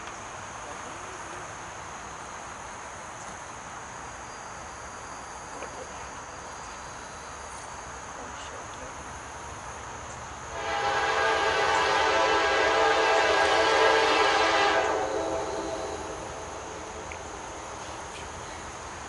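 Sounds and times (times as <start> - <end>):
insects chirring: 0.0 - 19.0
train horn: 10.5 - 17.0.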